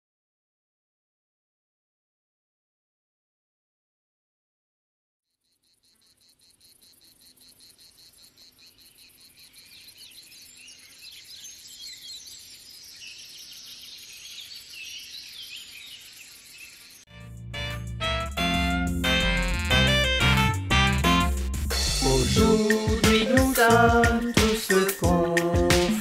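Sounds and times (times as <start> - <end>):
crickets chirping: 5.3 - 17.0.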